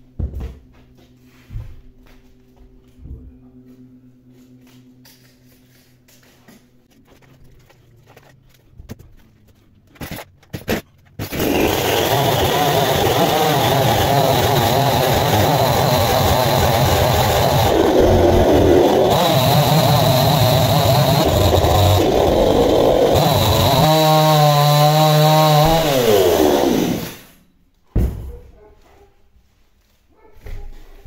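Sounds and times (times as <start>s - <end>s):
starter cord rasps: 9.9s - 27.3s
chainsaw engine running: 11.2s - 27.4s.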